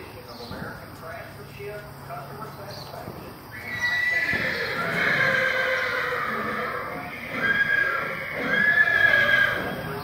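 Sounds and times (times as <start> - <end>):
horse neighing: 3.5 - 10.0.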